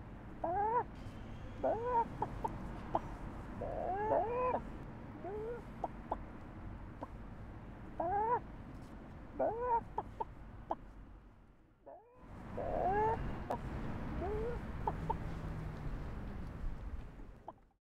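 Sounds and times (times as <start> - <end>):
low background noise: 0.0 - 17.7
chicken clucking: 1.6 - 4.6, 8.0 - 8.4, 9.4 - 10.8, 12.6 - 13.6, 14.2 - 15.4.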